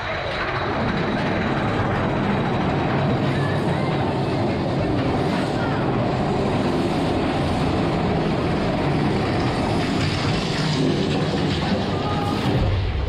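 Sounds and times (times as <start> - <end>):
roller coaster cars rumbling on track: 0.0 - 13.0.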